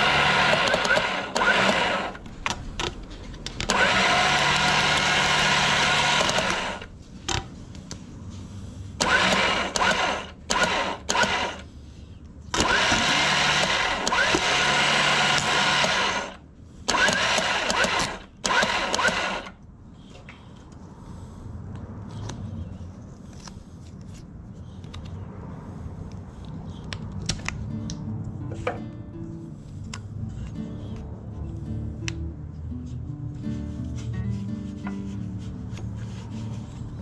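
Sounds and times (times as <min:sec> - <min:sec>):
electric winch motor running: 0:00.0 - 0:02.2, 0:03.7 - 0:06.9, 0:09.0 - 0:11.6, 0:12.6 - 0:19.6.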